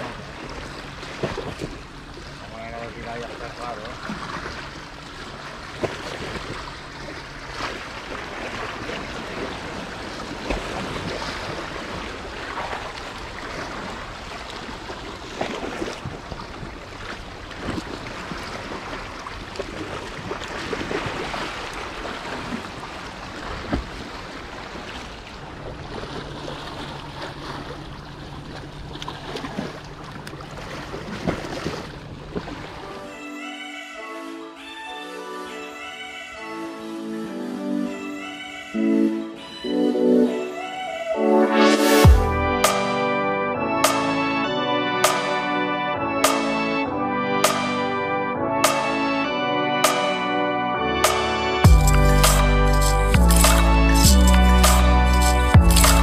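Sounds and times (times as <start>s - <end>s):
sharp water splashes: 3.0s - 32.9s
water lapping against rocks: 3.2s - 32.9s.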